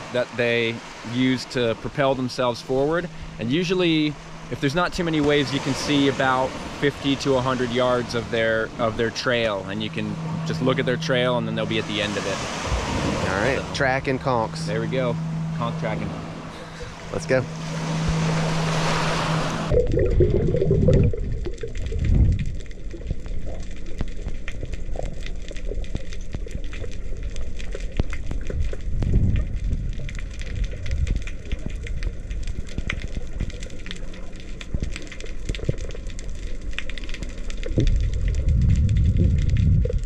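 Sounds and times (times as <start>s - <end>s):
small waves washing on sand: 0.0s - 16.2s, 16.9s - 19.8s
muffled underwater noise: 0.0s - 38.6s
faint crackling clicks: 19.7s - 40.0s.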